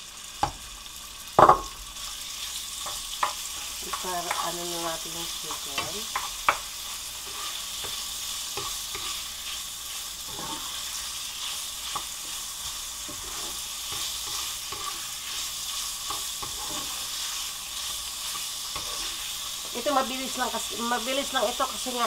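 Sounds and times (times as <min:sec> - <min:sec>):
food sizzling in a frying pan: 0:00.0 - 0:22.0
spatula scraping and tapping pan: 0:02.4 - 0:20.0.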